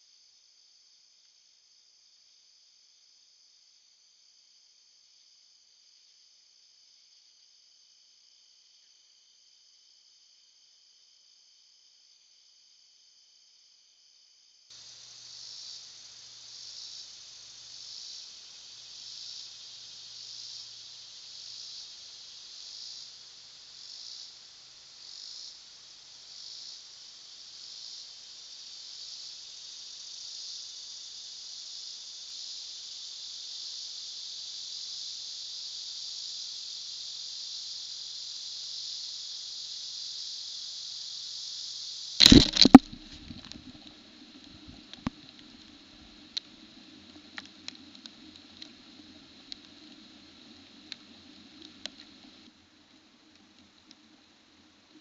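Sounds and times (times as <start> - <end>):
insects singing: 14.8 - 27.2
loud sharp clicks: 42.2 - 43.8.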